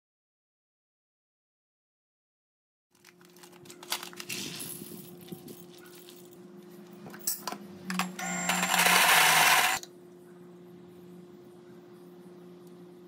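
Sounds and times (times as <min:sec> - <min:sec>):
coffee grinder grinding beans: 0:08.2 - 0:09.8.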